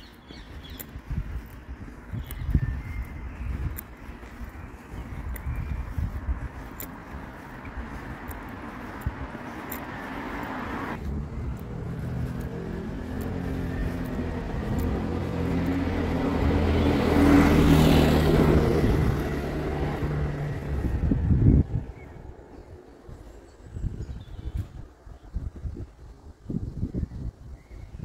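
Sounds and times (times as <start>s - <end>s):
vehicle passing close: 3.4s - 23.3s.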